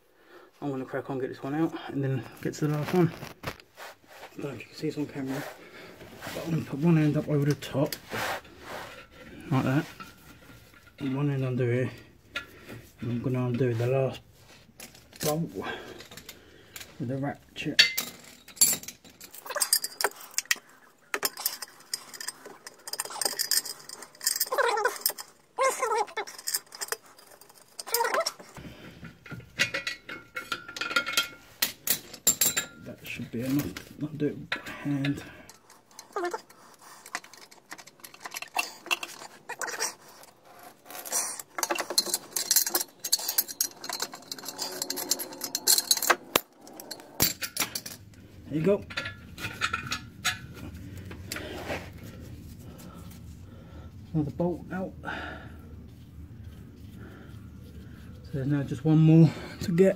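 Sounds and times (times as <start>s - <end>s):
ratchet and socket clinking: 40.9s - 48.1s.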